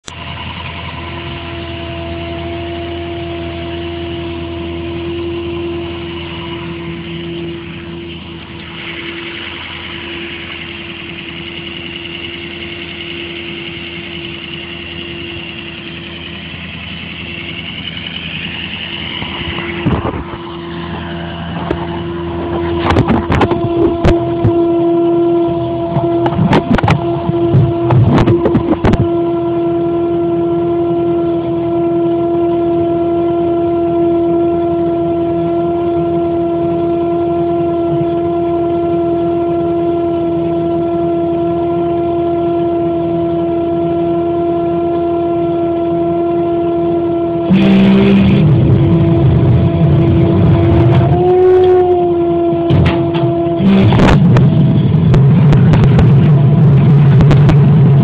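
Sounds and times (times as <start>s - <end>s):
deep engine rumble: 0.0s - 58.0s
crane truck hydraulic whine: 0.1s - 58.0s.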